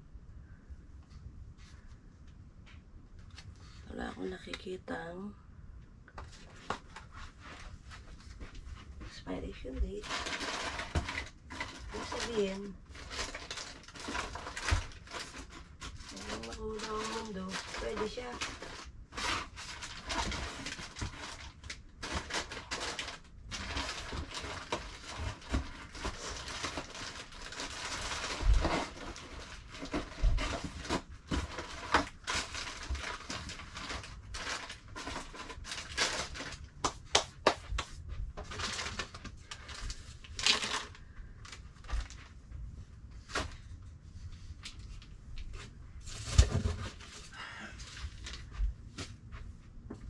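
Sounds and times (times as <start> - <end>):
packets rustling and crinkling: 9.8 - 49.5.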